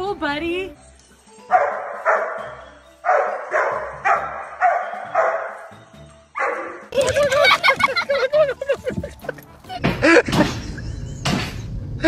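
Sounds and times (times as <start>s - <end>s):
small dog barking: 3.1s - 5.6s.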